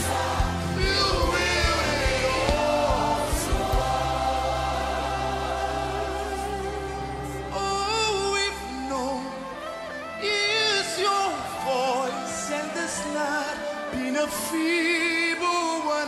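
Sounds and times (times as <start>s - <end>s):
man singing gospel song: 0.0s - 3.9s, 7.5s - 16.0s
sustained backing chords: 0.0s - 15.6s.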